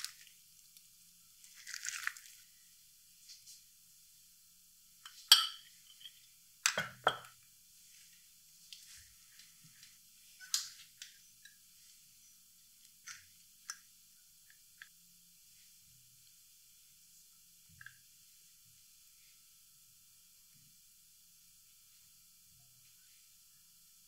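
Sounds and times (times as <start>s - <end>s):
metal spoon clinking on dishware: 5.1s - 7.3s.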